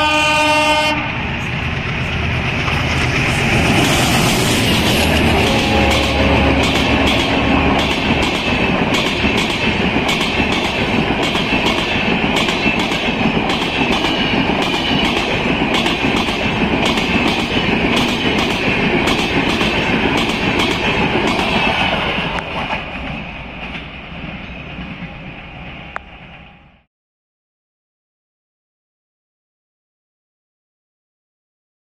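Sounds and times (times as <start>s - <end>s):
rolling hiss of train: 0.0s - 26.8s
train wheels clattering: 1.3s - 26.0s.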